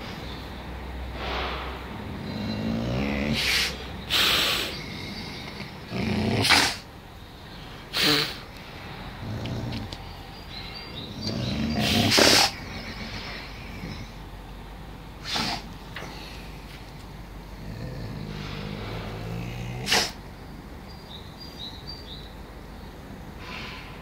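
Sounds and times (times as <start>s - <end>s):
wolf huffing: 1.2s - 14.4s, 15.2s - 20.4s
wolf growling: 2.0s - 14.4s, 15.2s - 20.4s.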